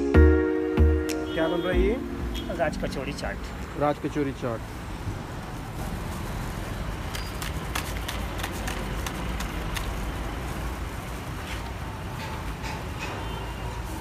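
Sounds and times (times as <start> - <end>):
traffic rumble: 1.1 - 14.0.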